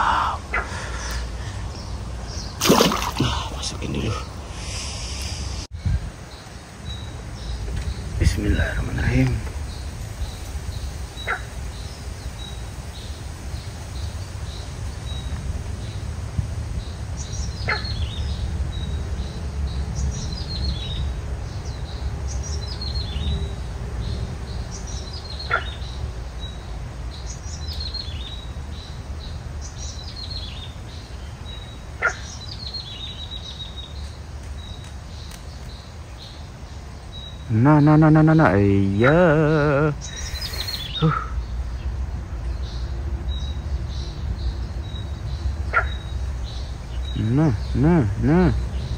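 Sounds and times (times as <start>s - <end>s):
bird calling: 0.0s - 5.7s, 24.7s - 26.6s, 29.6s - 34.1s, 37.1s - 41.9s, 45.7s - 48.9s.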